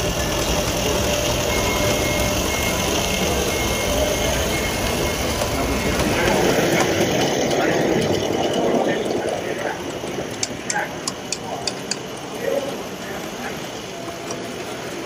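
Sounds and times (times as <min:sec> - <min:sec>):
model steam locomotive running: 0:00.0 - 0:15.0.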